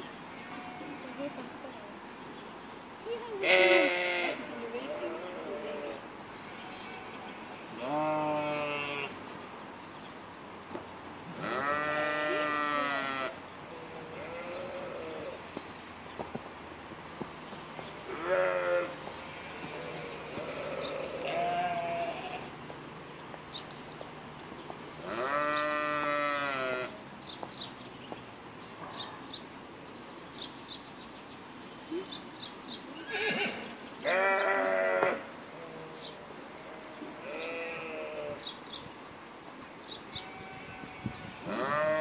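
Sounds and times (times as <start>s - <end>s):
sheep bleating: 0.3s - 1.5s, 3.4s - 9.2s, 11.4s - 15.4s, 18.1s - 22.5s, 25.0s - 26.9s, 33.0s - 35.8s, 36.6s - 38.4s, 40.2s - 42.0s.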